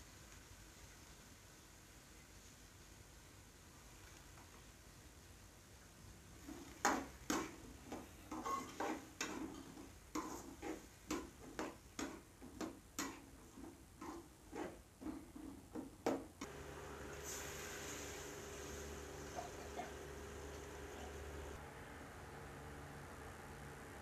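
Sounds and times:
water pouring into pot: 16.9s - 20.6s.

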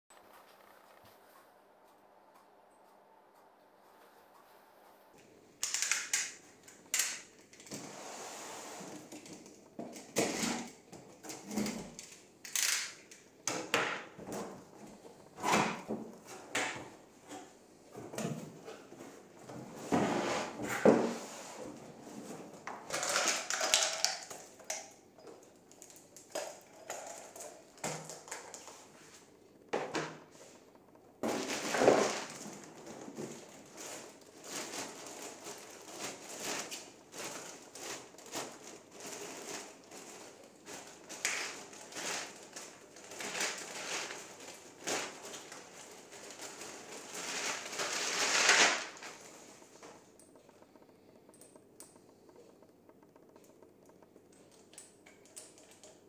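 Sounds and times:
plastic bags crinkling: 22.5s - 29.0s, 31.2s - 52.6s.

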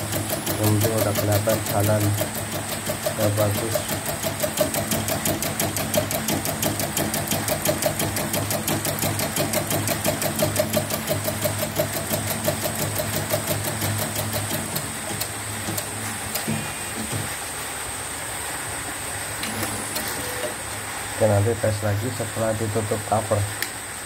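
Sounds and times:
embroidery needle clattering: 0.0s - 16.5s
motor hum: 0.0s - 21.1s.

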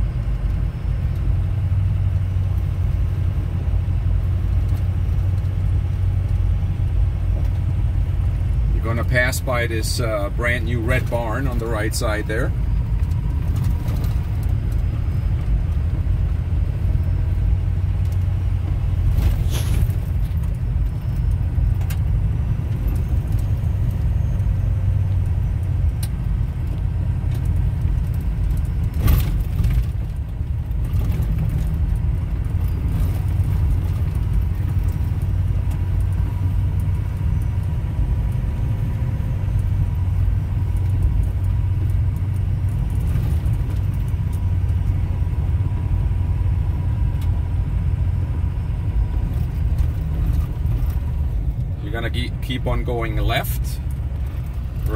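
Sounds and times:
vehicle rumble on gravel: 0.0s - 54.9s.

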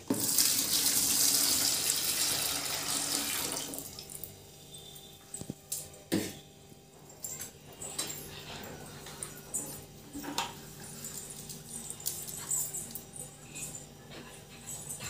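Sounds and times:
water pouring into bucket: 0.0s - 3.9s.

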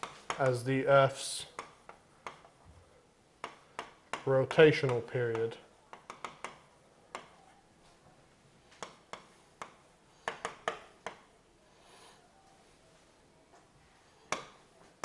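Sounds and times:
stylus tapping on writing surface: 3.4s - 7.4s, 8.8s - 11.3s.

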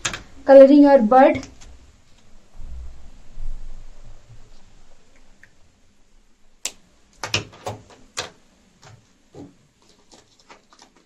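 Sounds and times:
pastels clicking in plastic tray: 7.2s - 11.0s.

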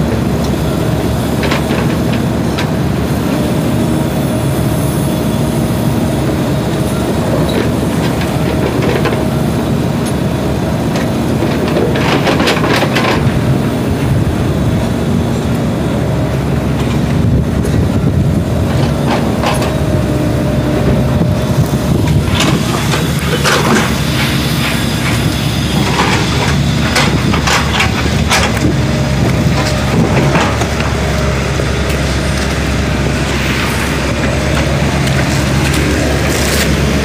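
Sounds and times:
excavator diesel engine running: 0.0s - 37.0s.

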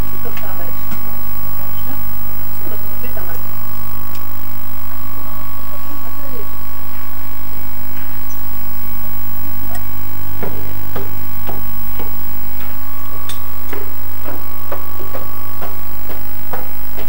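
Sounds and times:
electrical hum: 0.0s - 17.0s
footsteps on wooden floor: 9.7s - 17.0s.

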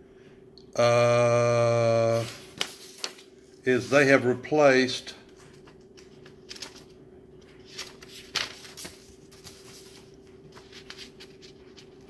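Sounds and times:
faint steady hum: 0.0s - 12.0s
paper rustling and crinkling: 2.2s - 4.2s, 5.2s - 12.0s.

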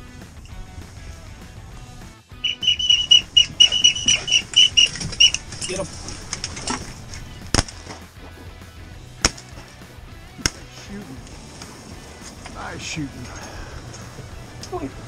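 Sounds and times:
duck whistle call: 2.4s - 5.5s
shotgun shot: 9.2s - 9.5s.

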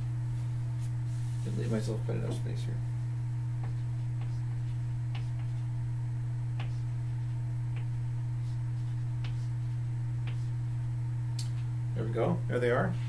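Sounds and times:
steady low hum: 0.0s - 13.0s
chalk tapping on blackboard: 3.6s - 4.5s, 5.1s - 5.6s, 6.6s - 6.9s, 8.9s - 10.5s.

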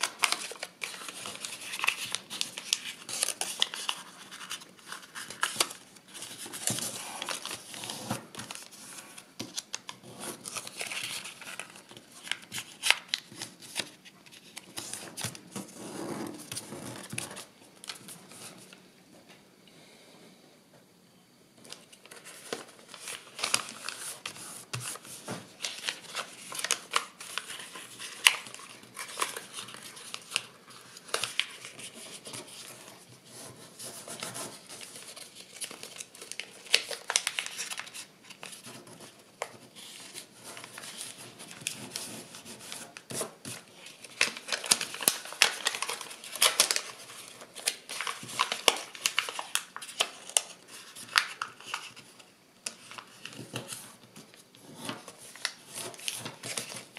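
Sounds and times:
paper crackling as folded: 0.0s - 18.8s, 21.6s - 56.9s
paper crinkling and rustling: 0.0s - 18.8s, 21.6s - 56.9s.

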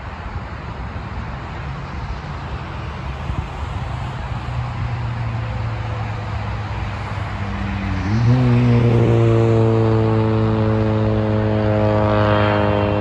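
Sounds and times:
jet engines rumbling: 0.0s - 13.0s
deep droning jet hum: 9.0s - 13.0s.

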